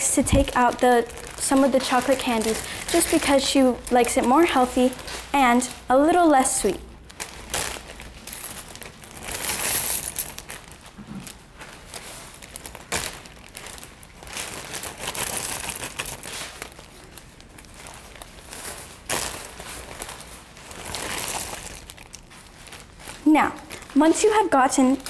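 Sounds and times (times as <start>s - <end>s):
plastic bags crinkling: 0.0s - 25.0s.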